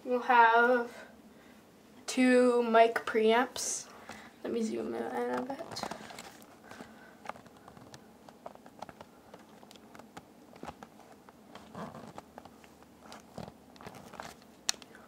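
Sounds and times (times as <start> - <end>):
handling clicks and rustles: 5.2 - 15.0.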